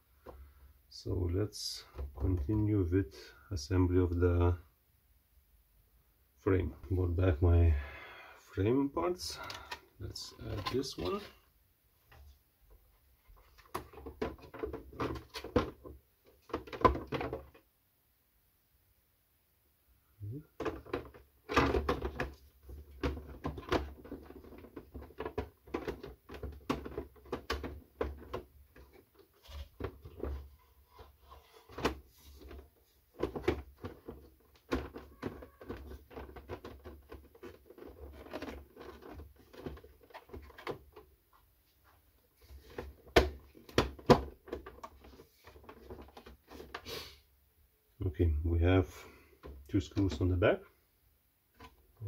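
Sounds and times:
plastic parts clacking: 9.2s - 11.4s, 13.2s - 17.7s, 20.5s - 41.2s, 42.4s - 46.8s.

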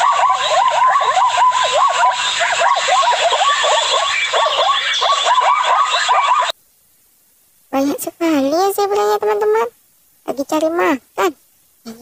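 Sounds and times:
zebras calling: 0.0s - 6.5s.

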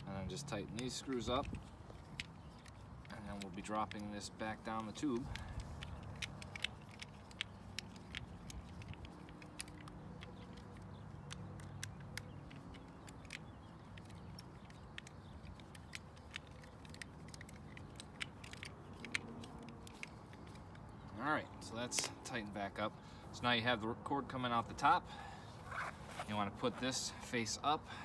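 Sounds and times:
screwdriver tightening screws: 0.4s - 20.9s.

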